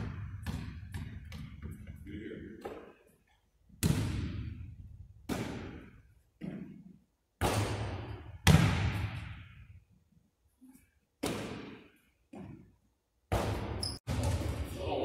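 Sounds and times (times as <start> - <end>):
basketball bouncing on hardwood: 0.0 - 1.9.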